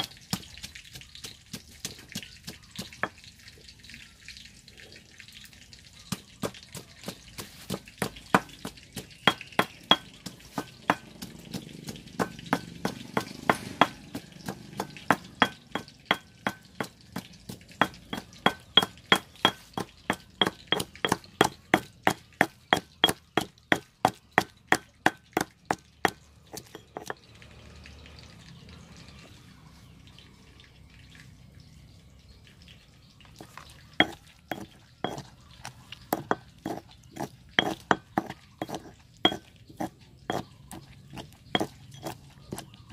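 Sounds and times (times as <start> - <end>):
stone pestle pounding in mortar: 6.1 - 27.2, 34.0 - 35.4, 36.1 - 42.9.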